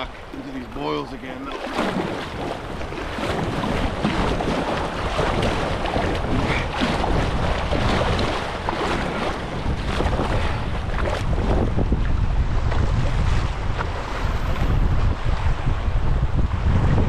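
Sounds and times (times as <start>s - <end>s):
river water rushing: 0.0s - 11.9s
wind buffeting microphone: 0.0s - 17.0s.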